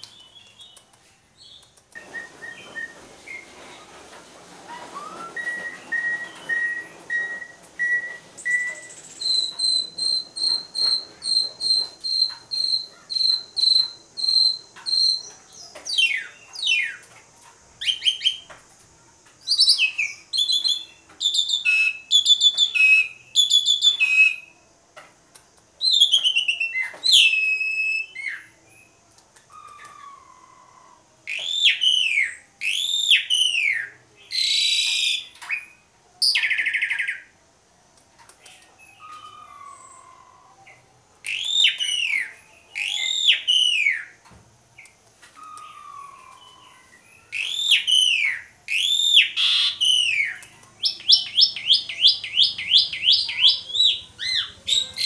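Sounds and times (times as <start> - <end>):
starling singing: 4.7 - 17.0, 19.5 - 24.5, 25.8 - 28.9, 38.5 - 44.2, 44.8 - 55.0.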